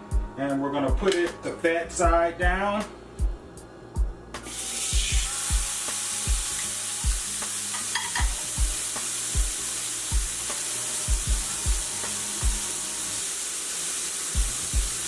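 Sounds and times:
meat sizzling in skillet: 0:04.5 - 0:15.0.

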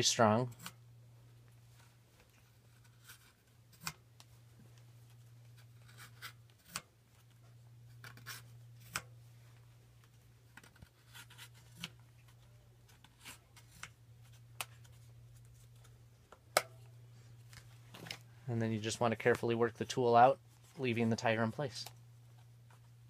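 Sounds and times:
steady low hum: 0:00.0 - 0:23.0
scratches rubs and clicks: 0:05.5 - 0:06.8, 0:07.9 - 0:09.1, 0:10.6 - 0:12.0.

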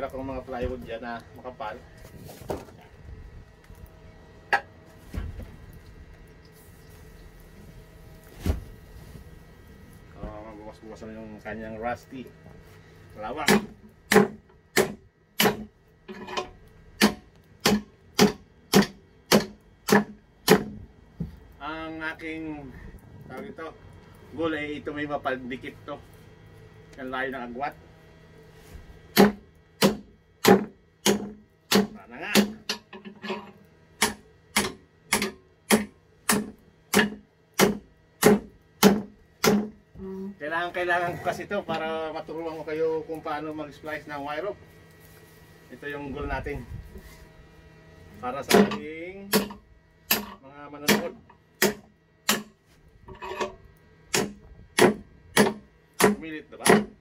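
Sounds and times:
hammer striking metal vise: 0:29.2 - 0:39.7, 0:48.5 - 0:52.5, 0:53.1 - 0:57.0
hammer striking metal vice: 0:48.5 - 0:52.5, 0:53.1 - 0:56.9.

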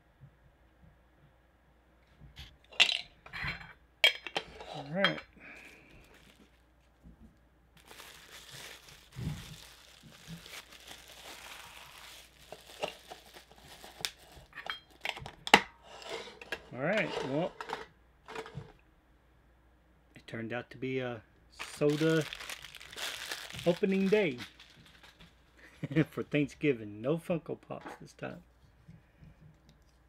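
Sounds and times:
clicks and clinks of cans: 0:02.7 - 0:05.3
plastic bag crinkling: 0:04.8 - 0:06.8, 0:07.8 - 0:15.0, 0:21.6 - 0:25.9.

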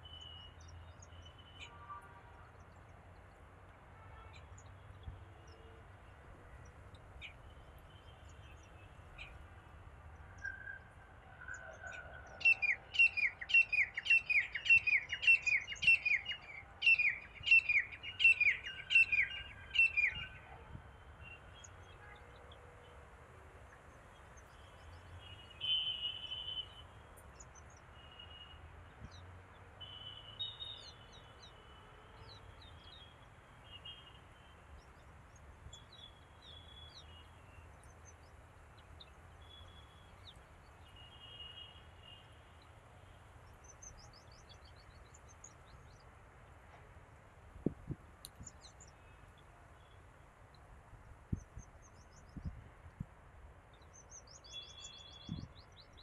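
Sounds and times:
birds chirping: 0:12.3 - 0:20.6, 0:29.8 - 0:56.0.

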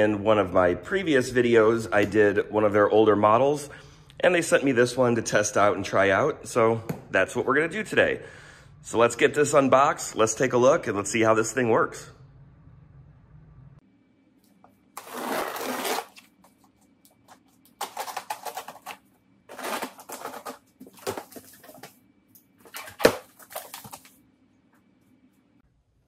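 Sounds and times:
cardboard box scraping and rustling: 0:15.0 - 0:16.2.

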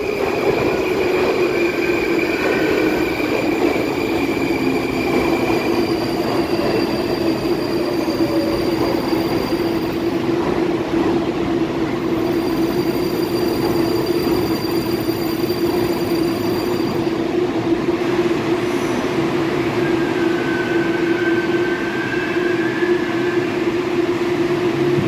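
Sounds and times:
train braking to a stop: 0:00.0 - 0:10.3, 0:12.0 - 0:17.4, 0:18.6 - 0:24.1
faint brake squeal: 0:04.2 - 0:10.0, 0:12.3 - 0:17.1.

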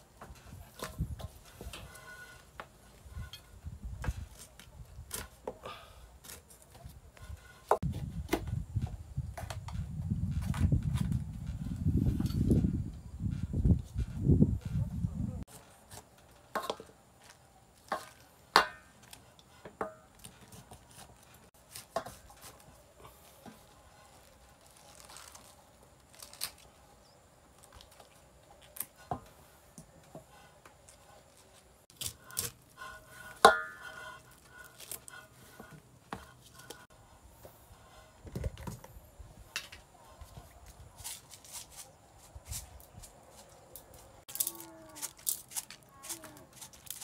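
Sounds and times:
leaf rustling: 0:20.2 - 0:29.0, 0:30.8 - 0:35.6, 0:40.8 - 0:47.0.

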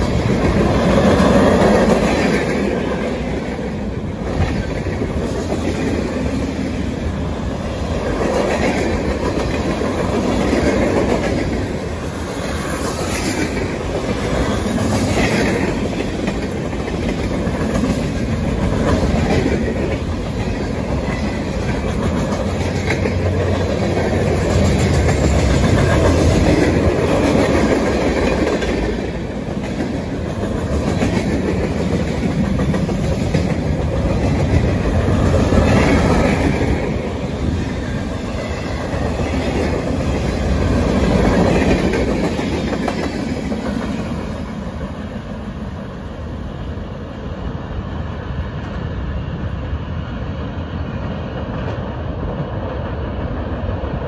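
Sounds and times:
freight train rumbling by: 0:00.0 - 0:54.0
wheels clacking over rail joints: 0:08.0 - 0:44.9.

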